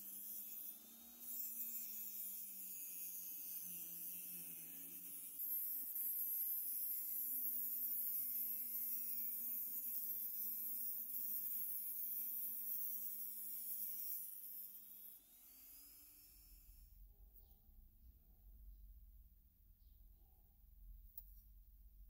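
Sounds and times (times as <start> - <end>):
rotary tool grinding metal: 0.0 - 17.0.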